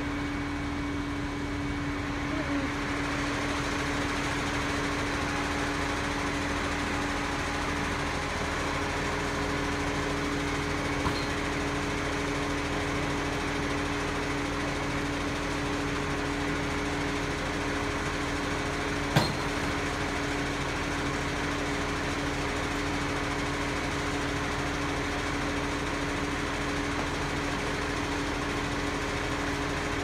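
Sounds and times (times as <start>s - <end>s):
garbage truck engine running: 0.0s - 30.0s.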